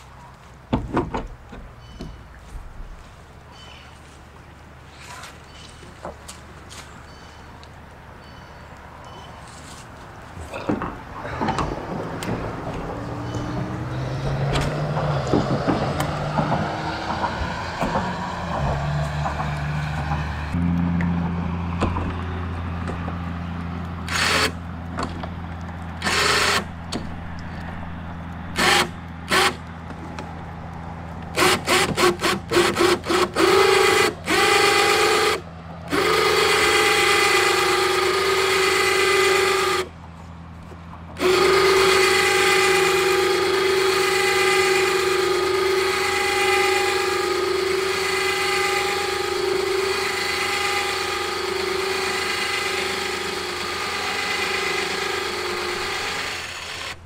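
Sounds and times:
electric winch motor whining: 0:24.0 - 0:24.7, 0:25.9 - 0:29.7, 0:31.3 - 0:40.0, 0:41.1 - 0:57.0.

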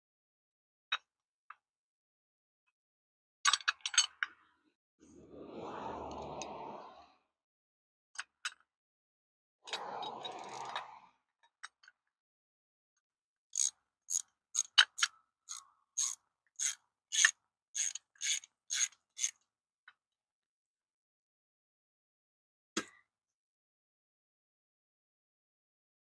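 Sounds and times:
hand ratchet clicking: 0:13.6 - 0:19.3.

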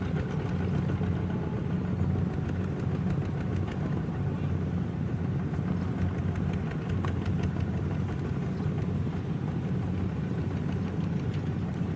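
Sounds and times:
small diesel engines running: 0:00.0 - 0:11.9.

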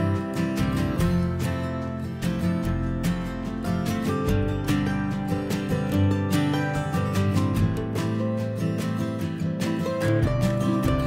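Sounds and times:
country music with acoustic guitar: 0:00.0 - 0:11.0.

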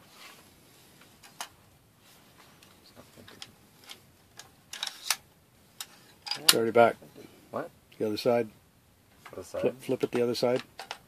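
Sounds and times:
rifle clicks and rattles: 0:10.5 - 0:11.0.

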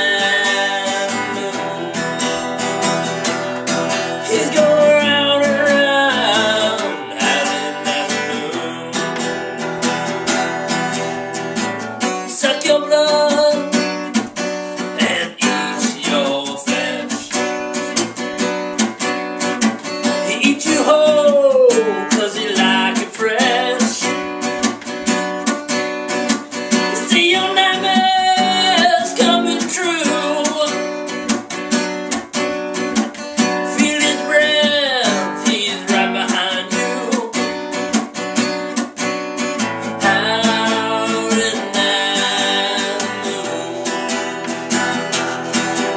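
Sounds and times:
man singing: 0:00.0 - 0:11.1, 0:12.0 - 0:17.6, 0:20.0 - 0:24.6, 0:26.7 - 0:31.2, 0:33.4 - 0:37.9, 0:39.6 - 0:45.9
acoustic guitar strumming: 0:00.0 - 0:45.9.

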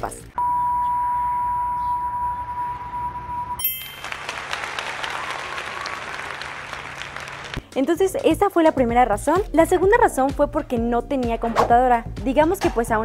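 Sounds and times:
steady beep tone: 0:00.4 - 0:04.0
bright chime: 0:03.6 - 0:04.6
applause: 0:03.7 - 0:07.8.

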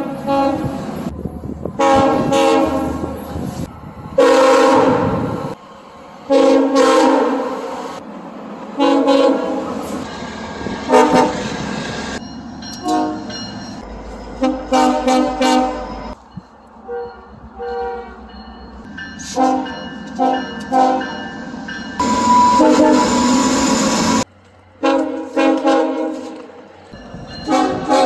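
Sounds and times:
locomotive air horn blasts: 0:00.0 - 0:00.9, 0:01.8 - 0:03.2, 0:04.2 - 0:05.3, 0:06.3 - 0:07.7, 0:08.8 - 0:09.8, 0:10.9 - 0:11.4, 0:12.8 - 0:13.3, 0:14.4 - 0:16.1, 0:19.3 - 0:21.1, 0:22.0 - 0:23.4, 0:24.8 - 0:26.5, 0:27.4 - 0:28.0
low train rumble: 0:00.0 - 0:28.0.

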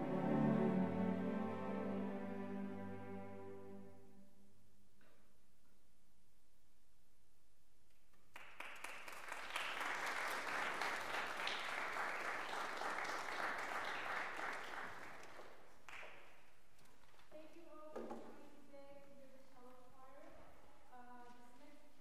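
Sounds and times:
audience applauding: 0:08.3 - 0:16.3.

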